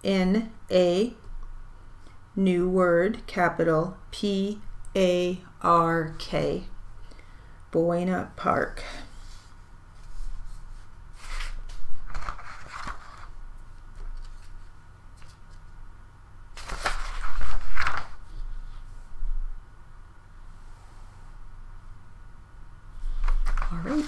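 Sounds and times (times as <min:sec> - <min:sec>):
paper rustling: 0:09.2 - 0:15.7, 0:16.5 - 0:18.8, 0:23.1 - 0:24.0.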